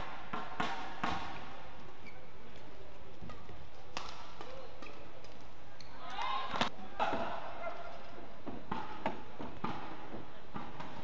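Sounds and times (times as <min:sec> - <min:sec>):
indoor arena hum: 0:00.0 - 0:11.0
badminton racket hitting shuttlecock: 0:03.3 - 0:05.4.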